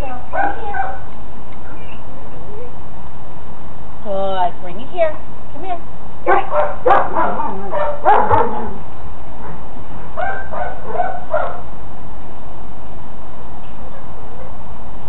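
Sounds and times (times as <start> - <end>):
dog giving high-pitched barks: 0.0 - 1.1, 6.3 - 11.7.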